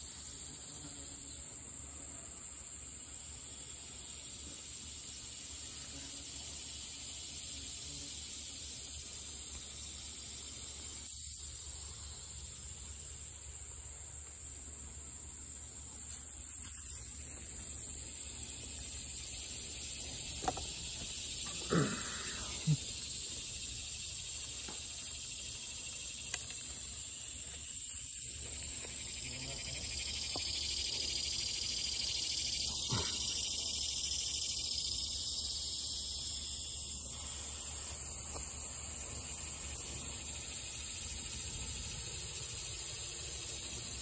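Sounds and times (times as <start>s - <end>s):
high-pitched insect chorus: 0.0s - 44.0s
hiss: 19.4s - 26.4s, 30.5s - 44.0s.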